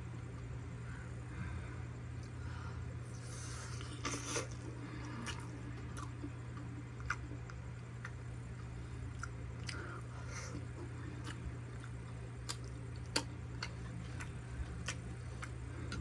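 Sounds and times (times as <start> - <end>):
low hum: 0.0 - 16.0
wet chewing and mouth smacking: 3.8 - 16.0.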